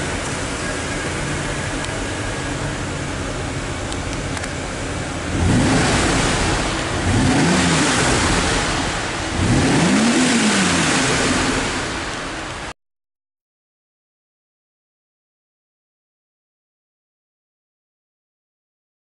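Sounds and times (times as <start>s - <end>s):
car engine idling and revving: 0.0s - 12.8s.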